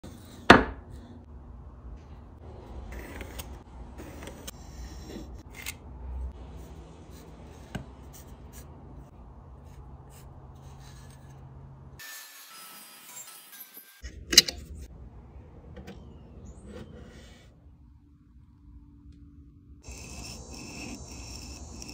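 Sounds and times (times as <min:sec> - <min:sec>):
low steady hum: 0:14.0 - 0:21.9
pencil scratching on wood: 0:19.9 - 0:21.9.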